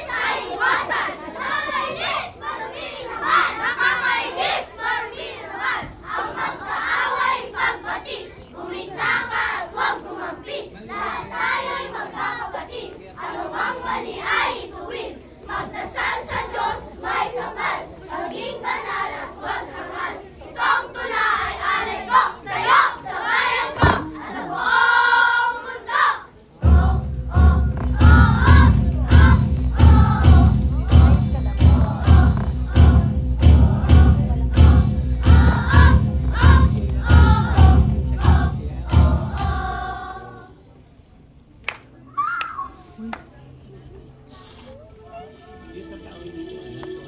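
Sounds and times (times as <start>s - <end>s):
children shouting and chattering: 0.0s - 47.0s
music with heavy bass beat: 26.6s - 39.6s.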